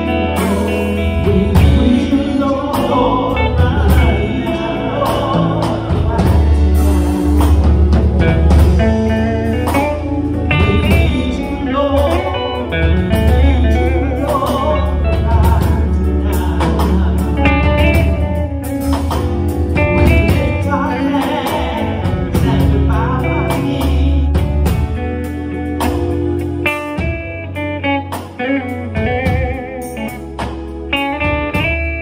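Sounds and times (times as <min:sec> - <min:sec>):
live band playing: 0:00.0 - 0:32.0
woman singing: 0:20.0 - 0:24.8.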